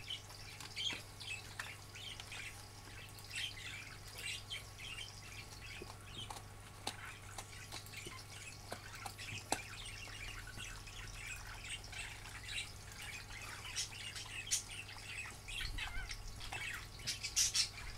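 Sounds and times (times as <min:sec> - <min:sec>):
small birds chirping: 0:00.0 - 0:17.9
dog chewing a treat: 0:05.7 - 0:09.8.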